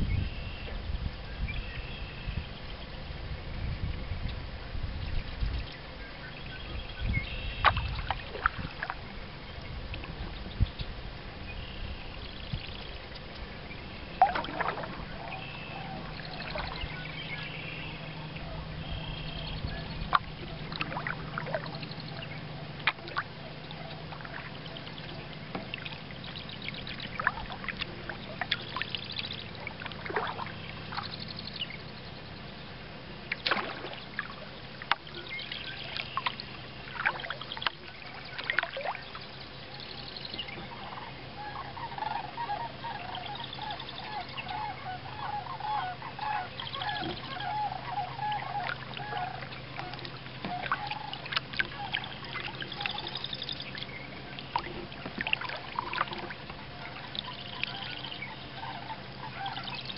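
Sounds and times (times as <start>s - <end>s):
low steady hum: 0.0s - 59.9s
water lapping against kayak: 0.3s - 59.9s
paddle splashing and dripping: 5.7s - 59.9s
bird chirps: 37.6s - 49.4s, 50.5s - 54.4s.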